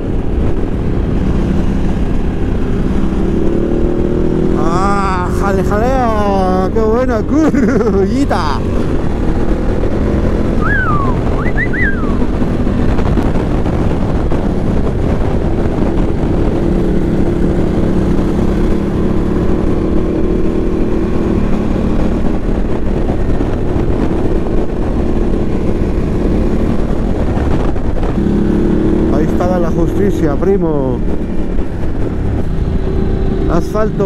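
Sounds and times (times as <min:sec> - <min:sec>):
motorcycle engine hum: 0:00.0 - 0:34.0
wind rush on microphone: 0:00.0 - 0:34.0
short high chirps: 0:10.6 - 0:12.2.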